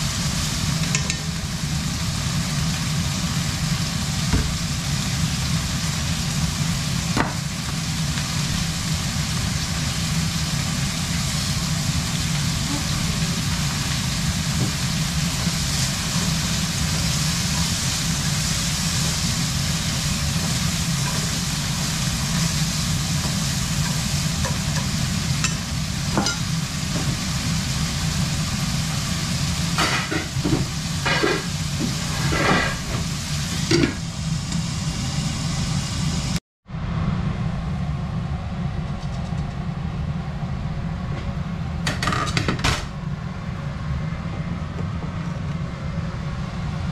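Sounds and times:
meat sizzling in a frying pan: 0:00.0 - 0:36.3
low hum: 0:33.0 - 0:42.0.

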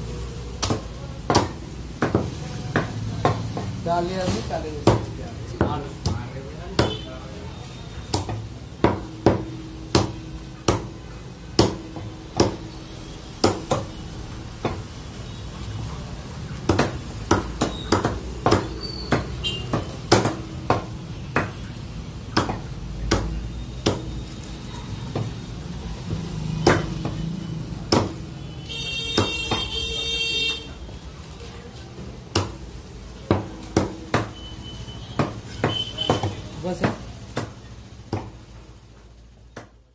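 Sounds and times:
cleaver chopping on wooden block: 0:00.6 - 0:03.7, 0:08.1 - 0:11.0, 0:11.6 - 0:12.6, 0:16.7 - 0:21.6, 0:22.3 - 0:24.1, 0:26.6 - 0:27.2, 0:27.9 - 0:28.2, 0:32.3 - 0:32.6, 0:33.3 - 0:34.3, 0:35.2 - 0:38.4.

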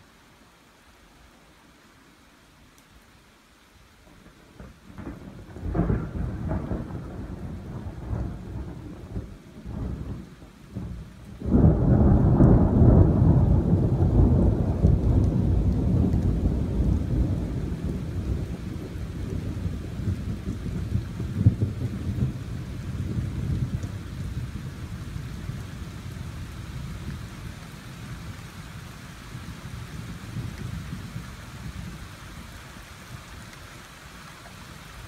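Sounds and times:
thunder rumbling: 0:04.9 - 0:32.2
loud thunder peal: 0:10.8 - 0:18.6.

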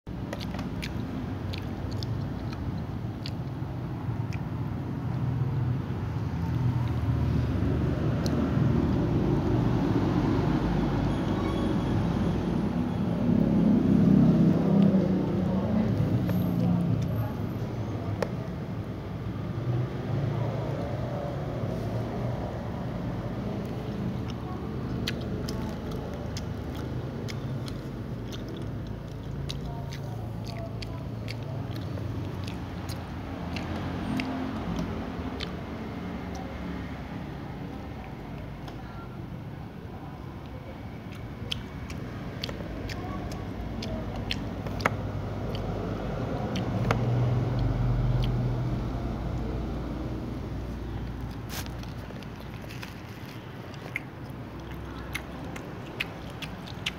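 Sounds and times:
low rumbling background noise: 0:00.1 - 0:56.9
cat crunching crisp food: 0:50.9 - 0:56.9.

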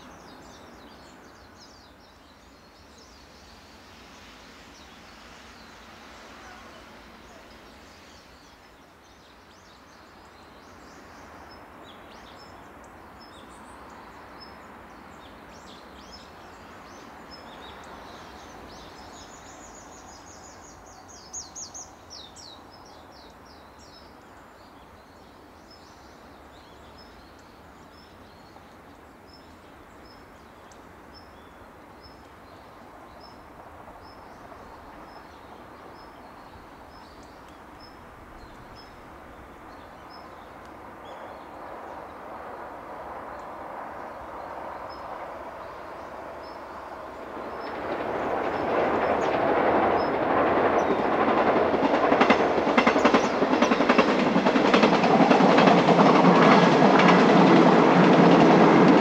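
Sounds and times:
bird short high call: 0:06.3 - 0:07.6
songbirds calling: 0:43.3 - 0:59.0.

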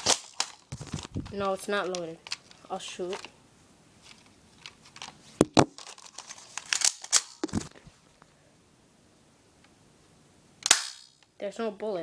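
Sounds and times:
rustling and scraping: 0:00.0 - 0:03.4, 0:04.0 - 0:08.3
pistol dry-firing snap: 0:10.6 - 0:11.1
pistol sharp clicks: 0:10.6 - 0:11.1.

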